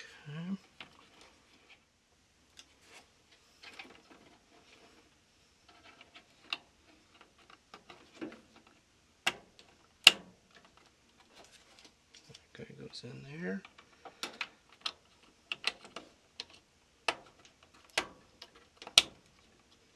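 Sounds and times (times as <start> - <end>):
plastic connectors clicking and rattling: 13.6 - 19.8.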